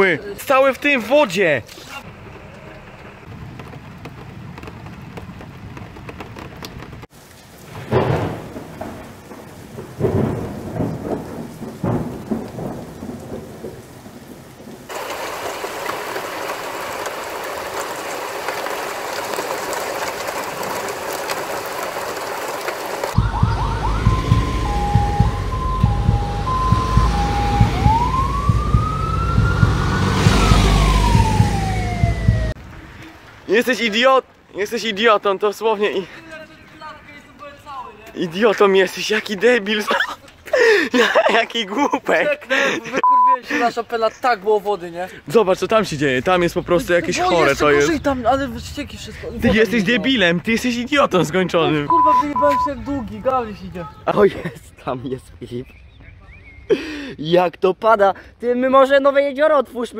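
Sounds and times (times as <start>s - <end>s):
heavy rain on street and roofs: 0.0s - 59.3s
thunder rumble: 2.1s - 33.5s
fire engine siren: 23.2s - 32.6s
low rumble: 23.2s - 32.8s.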